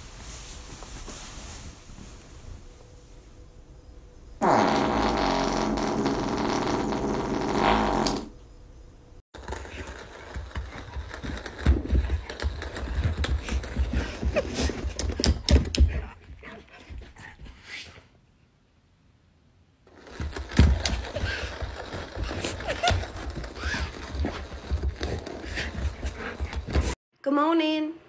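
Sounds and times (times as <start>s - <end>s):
dog farting: 4.4s - 8.4s.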